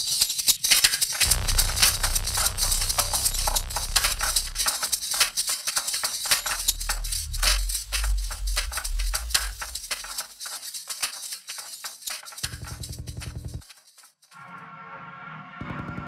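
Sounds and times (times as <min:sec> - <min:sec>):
deep bass rumble: 0:01.3 - 0:05.4, 0:06.3 - 0:10.0.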